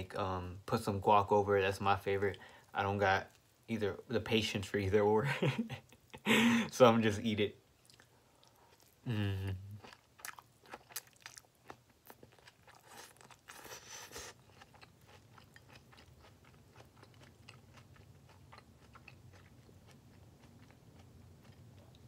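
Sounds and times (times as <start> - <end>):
person chewing wetly: 7.8 - 22.0.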